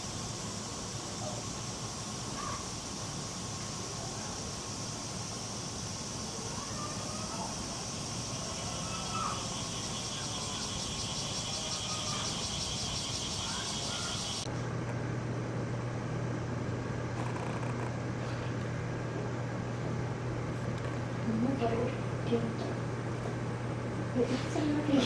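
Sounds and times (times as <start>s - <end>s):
cicadas droning: 0.0s - 14.5s, 19.7s - 25.0s
steady low hum: 0.0s - 25.0s.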